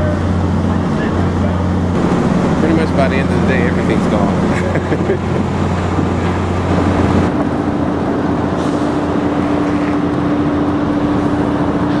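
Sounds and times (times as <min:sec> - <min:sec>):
steady hum: 0:00.0 - 0:12.0
street traffic noise: 0:00.0 - 0:12.0
car passing: 0:02.0 - 0:07.3.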